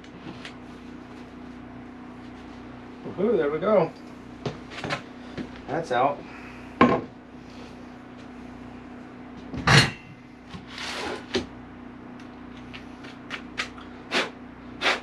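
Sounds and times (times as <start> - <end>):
faint steady hum: 0.0 - 15.0
short scrape: 10.7 - 11.3.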